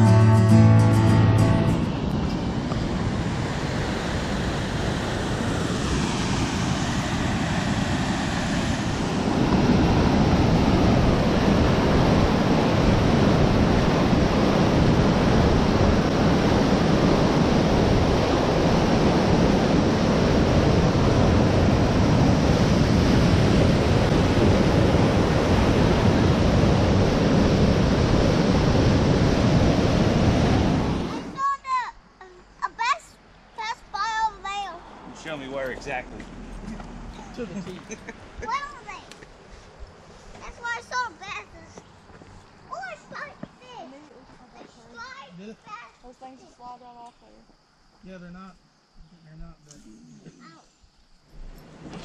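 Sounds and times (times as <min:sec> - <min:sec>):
rushing water: 0:01.0 - 0:31.6, 0:32.7 - 0:39.2
wind on microphone: 0:01.4 - 0:31.4.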